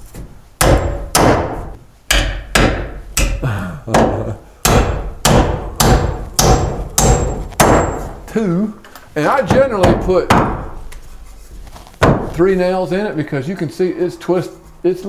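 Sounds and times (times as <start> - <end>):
hammer driving nails into wood: 0.6 - 3.4, 4.0 - 8.2.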